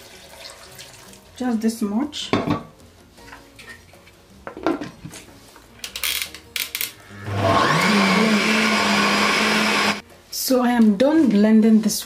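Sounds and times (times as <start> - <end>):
blender motor running: 7.2 - 10.0.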